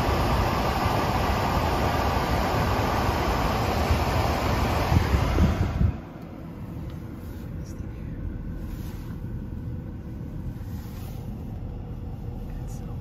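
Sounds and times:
loud rushing noise: 0.0 - 6.2
car wash brushes rumbling: 0.0 - 13.0.

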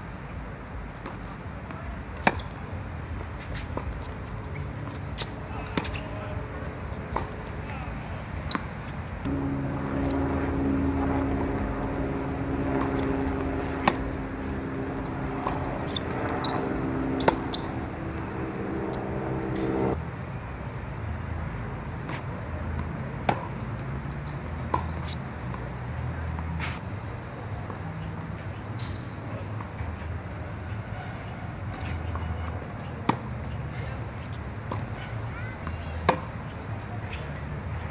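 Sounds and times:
tennis ball bouncing on hard court: 2.2 - 2.6, 3.6 - 6.1, 7.0 - 7.5, 12.8 - 14.4, 15.0 - 20.0, 22.8 - 23.6, 35.6 - 36.4
steady low hum: 9.0 - 20.0
racquet striking tennis ball: 12.8 - 14.5, 15.4 - 20.0.

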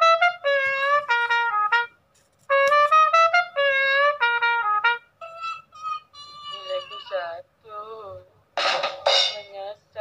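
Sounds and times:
brass instrument phrase: 0.0 - 1.9, 2.5 - 5.6.

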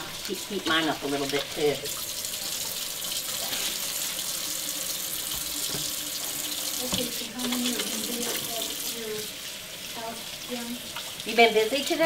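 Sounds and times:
hands washing under water: 0.0 - 9.0
tap running: 0.1 - 9.9.

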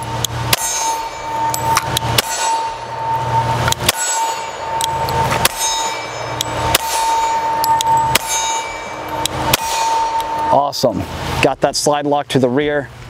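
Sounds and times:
pistol shots: 1.8 - 2.8.

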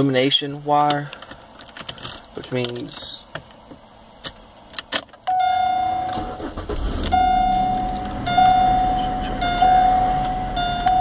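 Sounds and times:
car warning chime: 5.3 - 11.0
low hum: 5.3 - 11.0.

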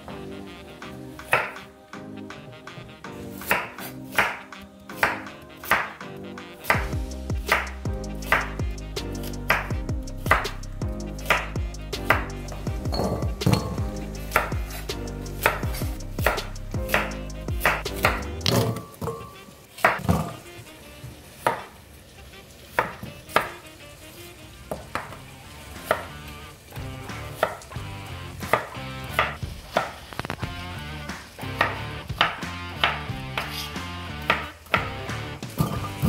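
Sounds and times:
knife chopping on wooden board: 1.2 - 1.6, 3.4 - 6.0, 10.3 - 10.5, 11.2 - 12.3, 12.9 - 14.8, 15.4 - 19.2, 19.8 - 20.4, 21.4 - 21.7, 22.8 - 23.6, 28.4 - 30.0, 31.6 - 33.7.

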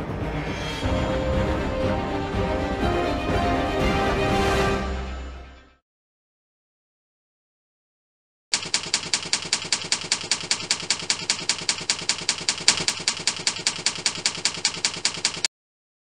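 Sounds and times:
typewriter key clicks: 8.6 - 15.5.

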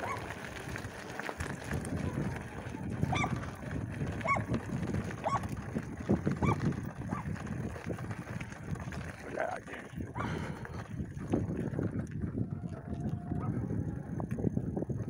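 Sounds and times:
bike rattling over stony track: 0.0 - 15.0.

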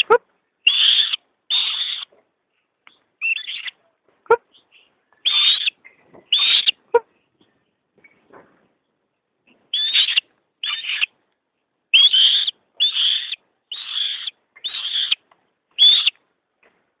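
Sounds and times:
hawk calling: 0.0 - 2.1, 9.7 - 11.1, 11.9 - 15.2, 15.8 - 16.2.

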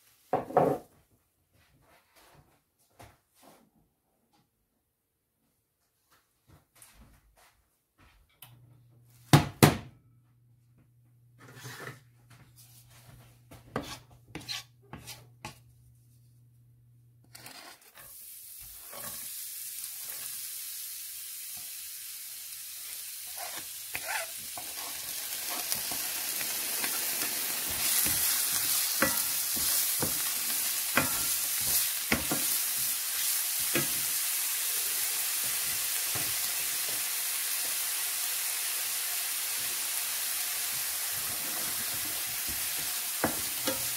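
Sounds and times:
onion sizzling in oil: 18.0 - 43.9.

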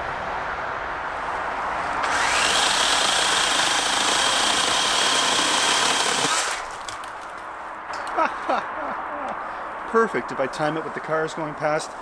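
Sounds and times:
electric chainsaw cutting: 2.0 - 7.0.

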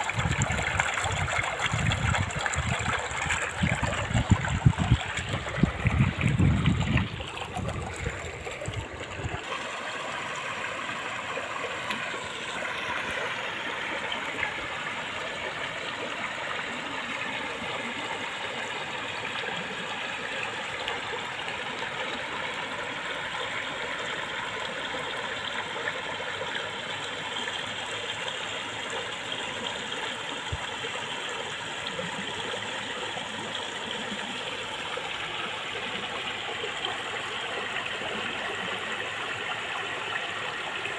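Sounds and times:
stream rushing over rocks: 0.0 - 40.9
low microphone rumble: 1.7 - 9.4.

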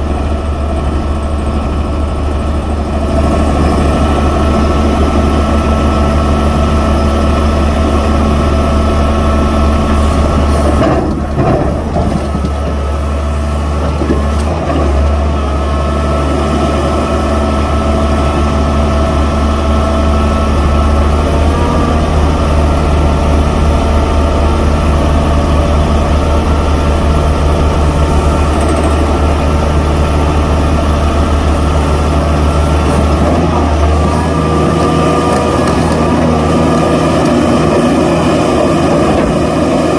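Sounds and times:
excavator engine under load: 0.0 - 39.9
hydraulic breaker hammering rock: 28.0 - 29.6.

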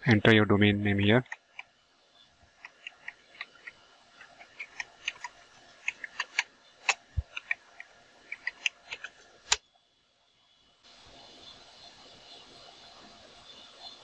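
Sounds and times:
faint steady hiss: 0.0 - 14.0
keyboard typing: 2.6 - 9.6.

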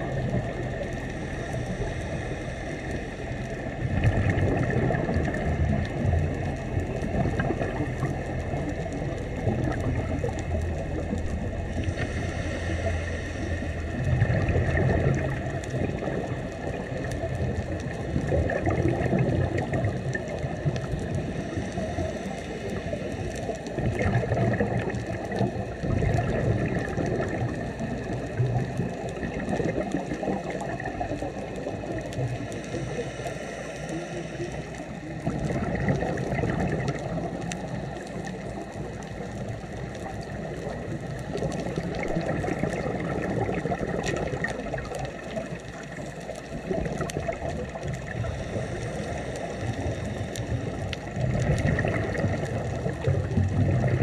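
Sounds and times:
exhaled bubbles: 0.0 - 54.0
steady underwater rush: 0.0 - 54.0
diver breathing through regulator: 1.1 - 3.6, 11.7 - 15.2, 32.4 - 35.2, 48.1 - 51.4.

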